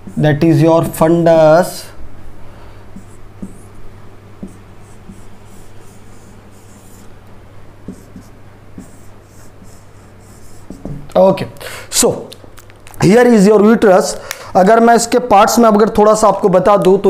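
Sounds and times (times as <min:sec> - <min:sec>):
marker scratching on whiteboard: 0:00.0 - 0:01.0, 0:02.9 - 0:03.8, 0:04.4 - 0:07.2, 0:07.8 - 0:11.1
steady low hum: 0:00.0 - 0:14.6.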